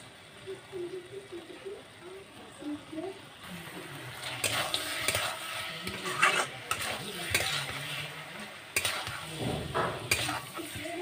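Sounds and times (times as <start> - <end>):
food sizzling in a pan: 0.0 - 11.0
metal spatula scraping a pan: 4.2 - 11.0.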